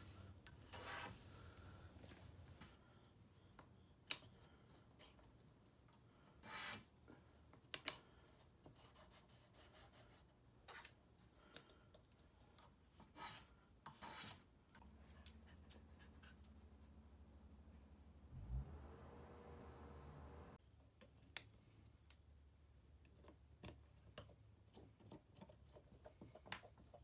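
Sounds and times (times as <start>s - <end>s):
low steady hum: 14.8s - 20.6s.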